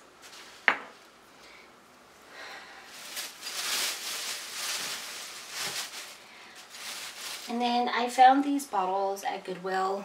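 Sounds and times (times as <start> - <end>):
rustling and handling noise: 0.0 - 1.2, 2.0 - 8.6.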